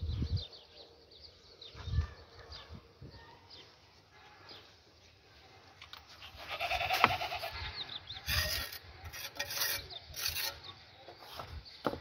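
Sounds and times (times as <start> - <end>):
goat bleating: 6.3 - 7.7
rasping scrapes: 8.2 - 11.6.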